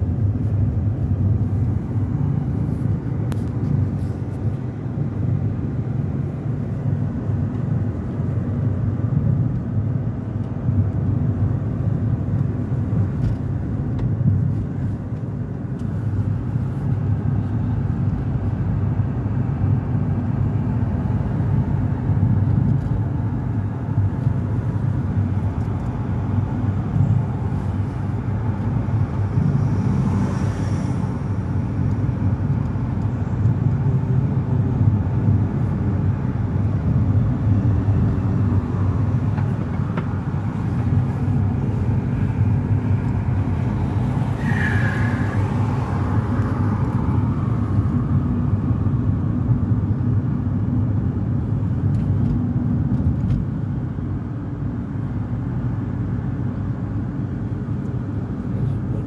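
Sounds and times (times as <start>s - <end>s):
car engine and tyre noise: 0.0s - 59.0s.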